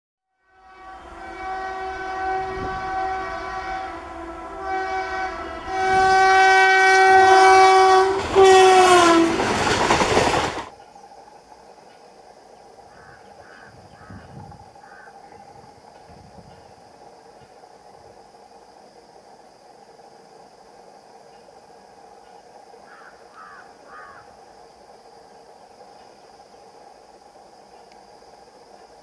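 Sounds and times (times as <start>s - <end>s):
locomotive horn blasts: 0.4s - 9.6s
passing train rush: 0.4s - 29.0s
faint chirping: 10.7s - 29.0s.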